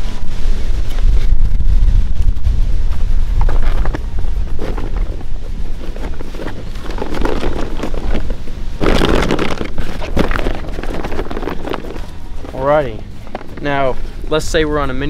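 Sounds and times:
wind rumbling on microphone: 0:00.0 - 0:15.0
backpack rustling and flapping: 0:03.0 - 0:13.9.

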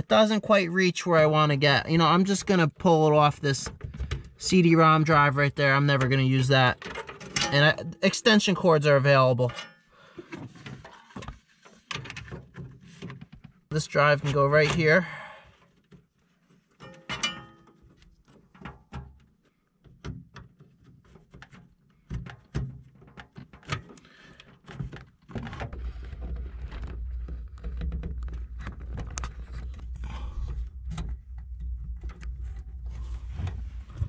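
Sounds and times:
cables being handled: 0:20.6 - 0:34.0.

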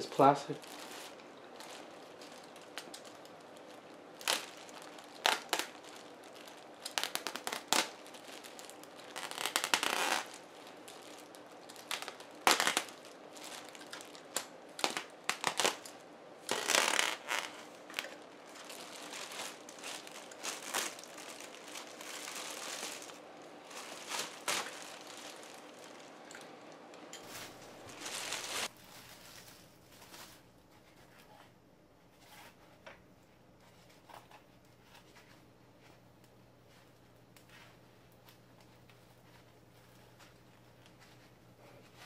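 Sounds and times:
plastic bag crinkling and rustling: 0:00.0 - 0:31.3.

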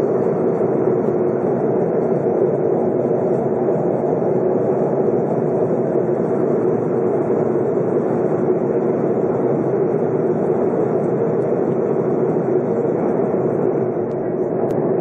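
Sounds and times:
airliner cabin engine noise: 0:00.0 - 0:15.0.

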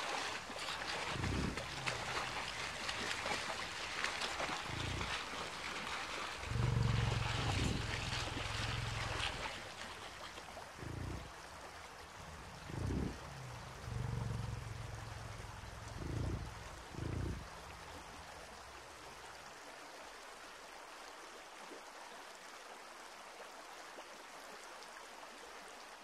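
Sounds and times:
river rushing over rocks: 0:00.0 - 0:12.6
low steady hum: 0:00.0 - 0:19.4
loud low rumbles: 0:00.9 - 0:03.4, 0:04.4 - 0:05.2, 0:06.4 - 0:09.6, 0:10.8 - 0:18.5.

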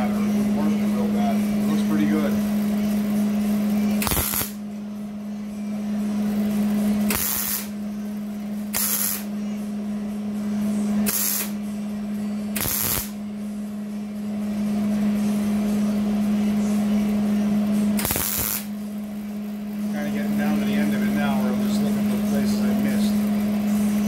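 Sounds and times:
steady low hum: 0:00.0 - 0:24.0
welder arc crackle and hiss: 0:03.9 - 0:04.6, 0:07.0 - 0:07.7, 0:08.7 - 0:09.3, 0:11.0 - 0:11.6, 0:12.6 - 0:13.2, 0:18.0 - 0:18.7.

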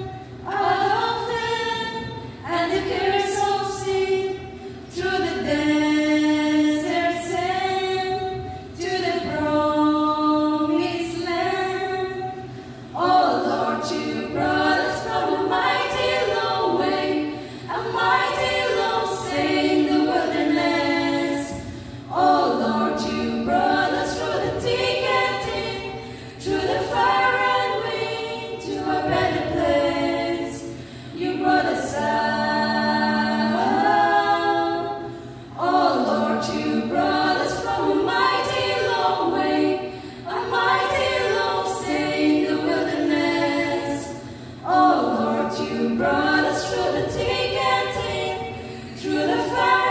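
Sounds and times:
female a cappella quartet singing: 0:00.0 - 0:49.9.

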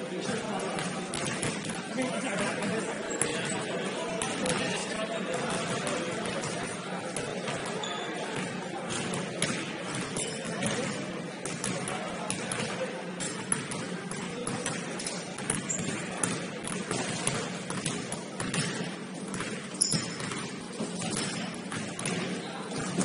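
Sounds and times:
basketballs bouncing on wood floor: 0:00.3 - 0:03.6, 0:08.4 - 0:23.0.

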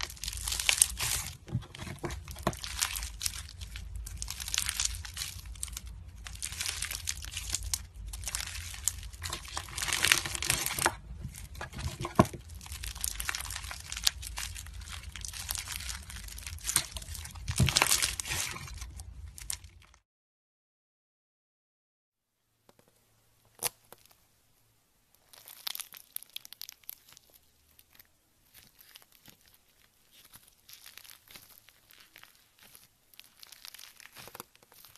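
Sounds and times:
hands squeezing crunchy slime: 0:00.0 - 0:20.0, 0:25.2 - 0:34.9.

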